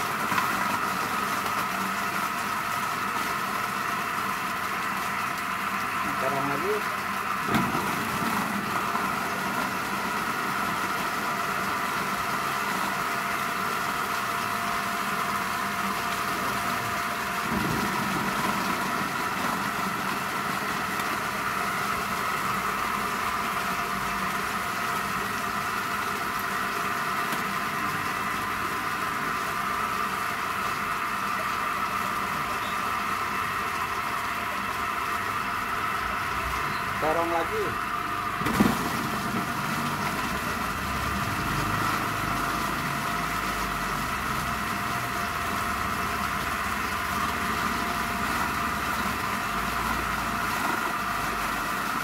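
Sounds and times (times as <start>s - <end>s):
electric vegetable chopper motor: 0.0s - 52.0s.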